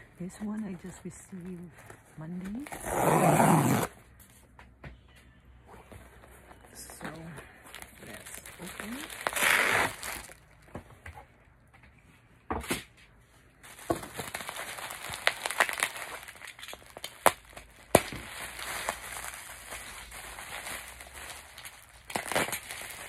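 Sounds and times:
bubble wrap crinkling: 0:00.3 - 0:03.9, 0:05.8 - 0:10.8, 0:13.6 - 0:23.0.

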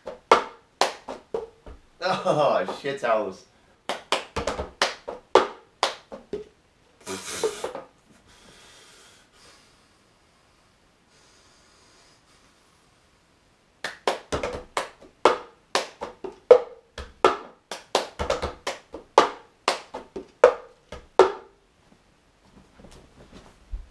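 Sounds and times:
hand claps: 0:00.0 - 0:01.5, 0:03.9 - 0:06.5, 0:13.8 - 0:21.5.

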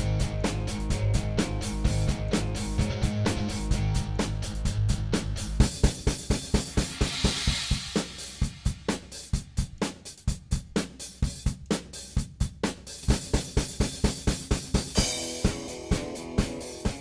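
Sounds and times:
drum kit beat: 0:00.0 - 0:17.0
cymbal wash: 0:06.4 - 0:09.2.

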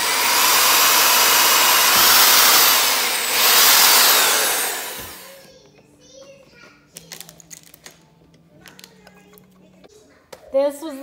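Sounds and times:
electric drill whining: 0:00.0 - 0:05.5.

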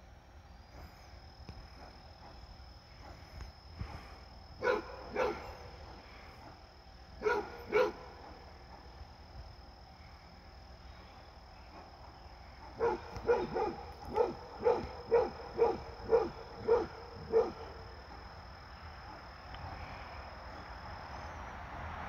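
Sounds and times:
dog barking: 0:04.6 - 0:06.6, 0:07.2 - 0:08.8, 0:12.6 - 0:17.8.

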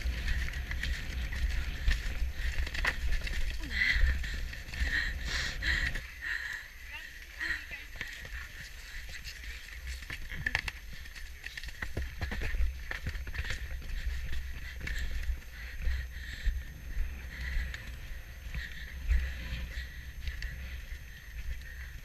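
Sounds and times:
wind buffeting microphone: 0:00.0 - 0:06.0
horse hoofbeats galloping: 0:00.0 - 0:22.0.

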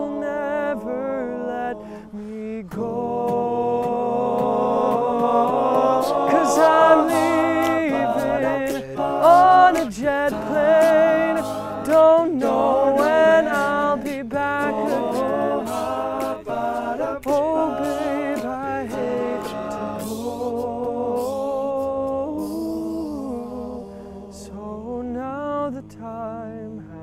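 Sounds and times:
male group singing harmony: 0:00.0 - 0:25.8
sharp clicks keeping a beat: 0:02.7 - 0:23.4.

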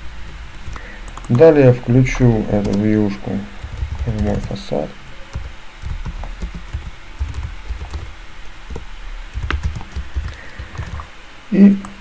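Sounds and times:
typing on keyboard: 0:02.6 - 0:02.9, 0:03.6 - 0:04.6, 0:05.3 - 0:08.1, 0:08.7 - 0:11.1.

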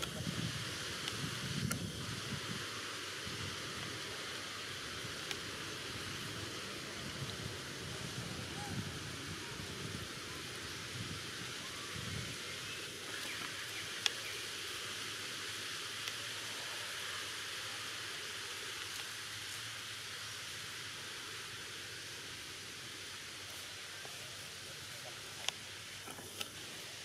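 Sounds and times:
outdoor ambience hiss: 0:00.0 - 0:27.0.

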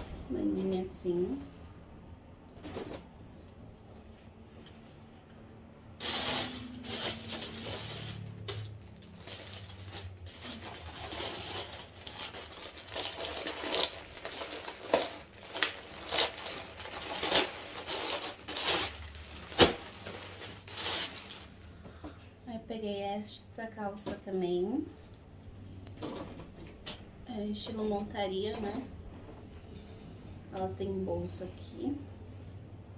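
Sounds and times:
plastic bags crinkling: 0:06.0 - 0:21.8.

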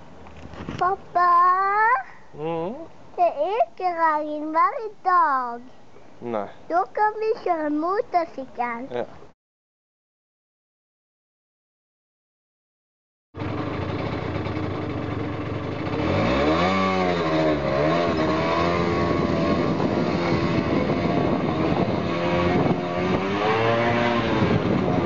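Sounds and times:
motor scooter engine revving: 0:13.4 - 0:25.0.

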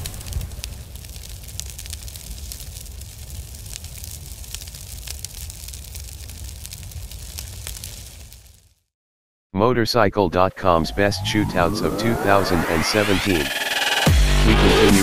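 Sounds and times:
fire crackling: 0:00.0 - 0:08.9.

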